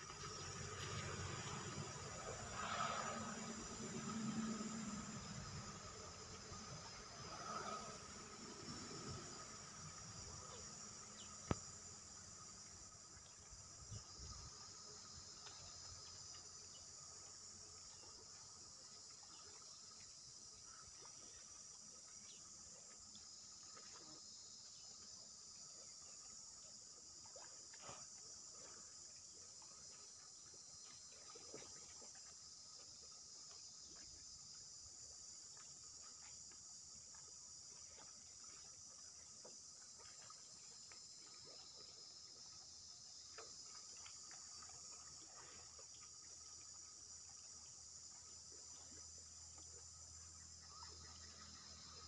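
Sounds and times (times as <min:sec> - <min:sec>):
insects buzzing: 0:00.0 - 0:20.8.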